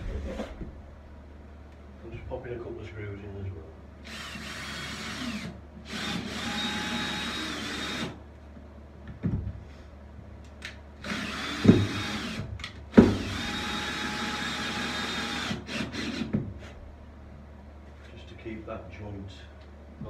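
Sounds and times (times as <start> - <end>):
drill-driver motor whine: 4.0 - 8.2, 11.0 - 12.4, 13.2 - 16.3.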